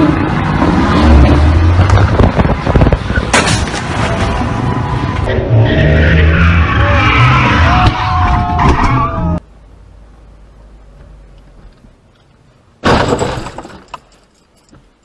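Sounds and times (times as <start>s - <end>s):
engine and road noise: 0.0s - 15.0s
car crash: 2.0s - 4.8s, 12.8s - 14.0s
car tyres squealing: 3.1s - 9.4s.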